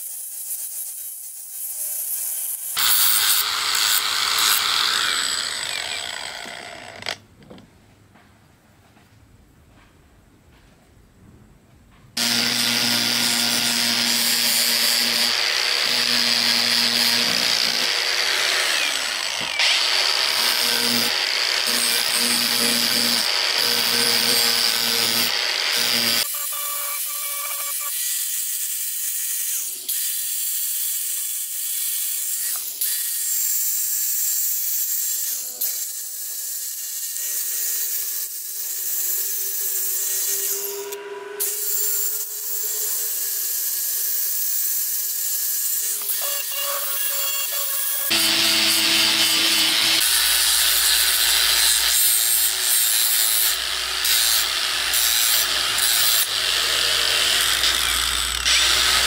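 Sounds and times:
angle grinder grinding steel: 0.0 - 7.2, 12.2 - 59.0.

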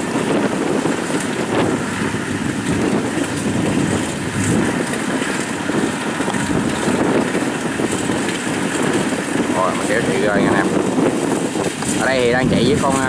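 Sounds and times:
combine harvester running: 0.0 - 13.0.

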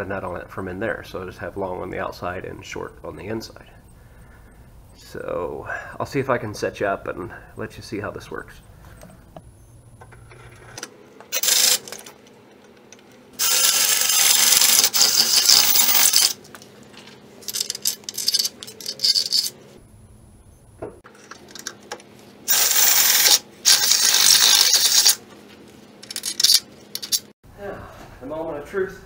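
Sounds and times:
cordless drill boring through steel: 11.3 - 11.9, 13.4 - 16.4, 22.5 - 25.2.

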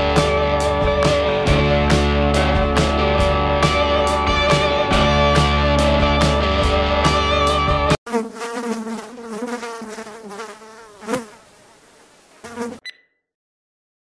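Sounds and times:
guitar music: 0.0 - 8.0
fly buzzing: 8.0 - 12.8.

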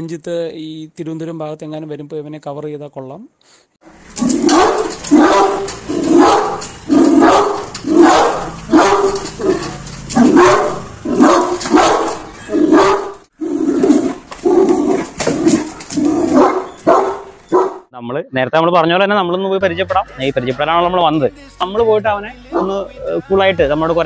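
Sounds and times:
large dog barking aggressively: 4.1 - 17.9, 22.5 - 22.8.

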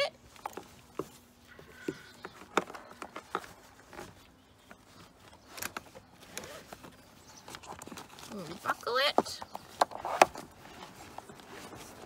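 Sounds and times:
seat belt webbing rustling: 2.4 - 12.0.

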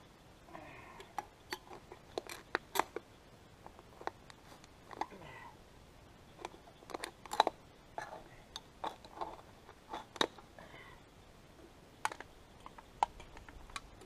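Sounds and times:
aluminium cans crinkling: 1.0 - 3.0, 3.6 - 5.2, 6.4 - 10.5.

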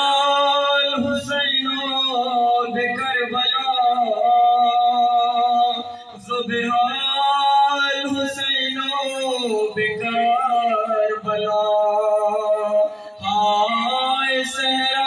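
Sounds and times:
man singing a lament: 0.0 - 15.0.

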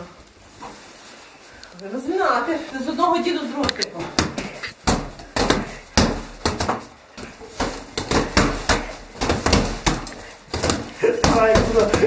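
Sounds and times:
fists hitting punching bag: 4.0 - 12.0.

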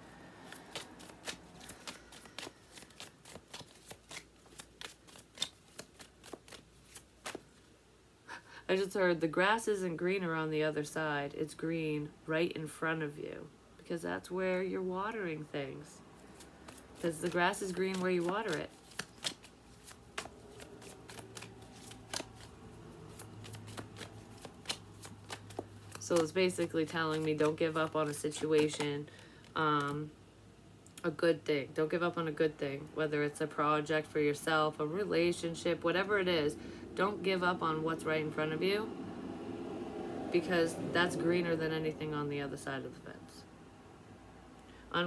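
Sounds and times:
cards being shuffled: 0.3 - 7.7, 16.2 - 30.1.

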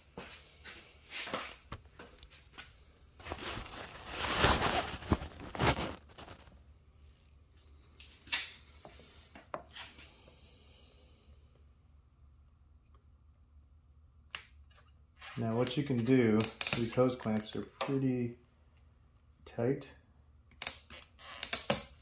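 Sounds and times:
rustling and scraping: 0.1 - 10.2.

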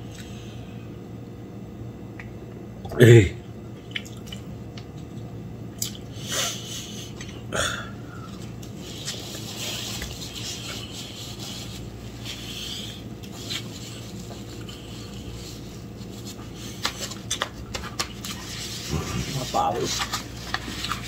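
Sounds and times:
food containers rustling: 8.3 - 21.0.

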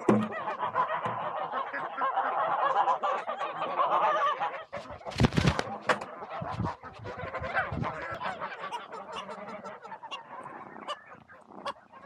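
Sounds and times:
poultry calling: 0.0 - 12.0
rustling: 4.8 - 5.8.

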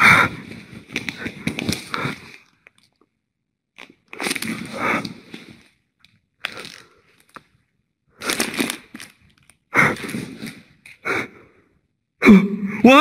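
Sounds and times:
plastic coin purse crinkling: 5.6 - 7.6, 8.2 - 9.7.

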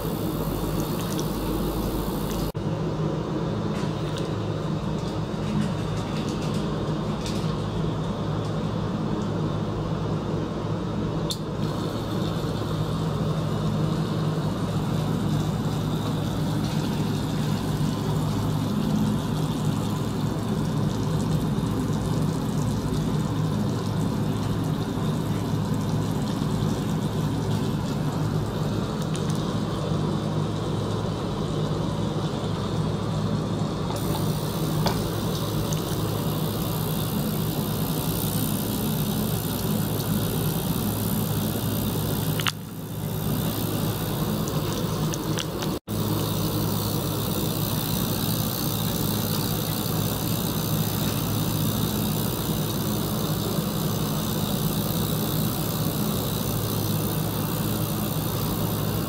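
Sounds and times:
bright hiss: 0.0 - 2.6, 34.0 - 59.0
running water: 0.0 - 2.6, 11.7 - 31.2
electric pump hum: 0.0 - 59.0.

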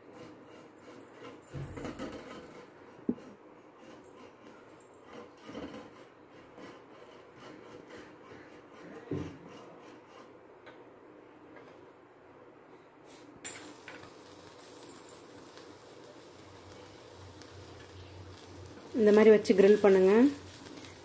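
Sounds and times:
steady hiss: 13.0 - 21.0.

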